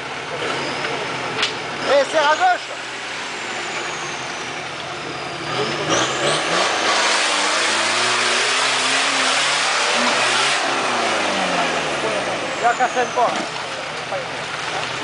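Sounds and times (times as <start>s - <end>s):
engine revving hard: 1.8s - 13.6s.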